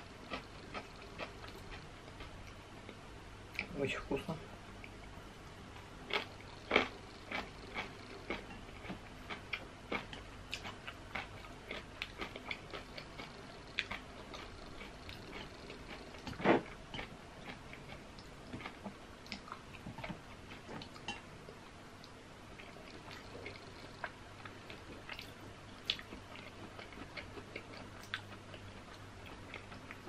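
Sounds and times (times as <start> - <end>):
wet chewing and mouth clicks: 6.1 - 21.2, 22.0 - 30.0.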